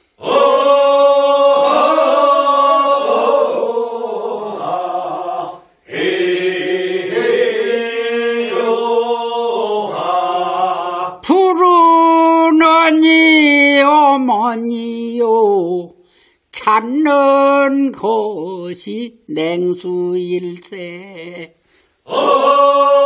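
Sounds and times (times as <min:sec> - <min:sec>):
group singing unaccompanied: 0:00.0 - 0:11.6, 0:20.7 - 0:23.0
lead voice singing: 0:00.2 - 0:15.9, 0:16.6 - 0:23.0.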